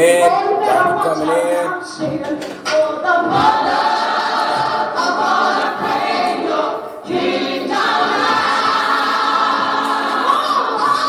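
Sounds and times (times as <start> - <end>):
choir singing long notes: 2.8 - 11.0.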